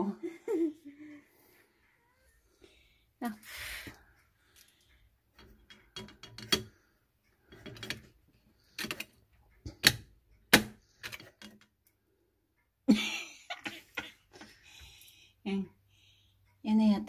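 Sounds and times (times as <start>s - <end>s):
metal clicking and tapping: 5.3s - 11.9s.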